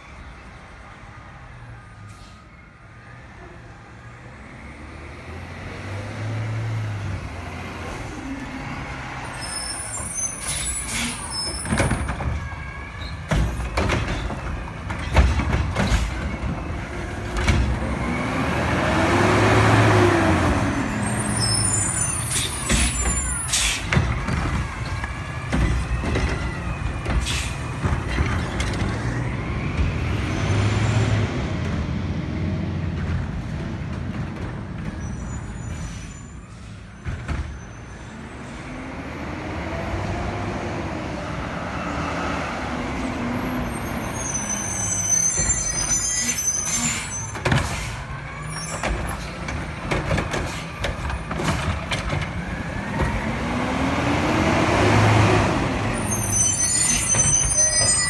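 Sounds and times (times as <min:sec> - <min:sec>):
air brake hisses: 0:22.3 - 0:23.9.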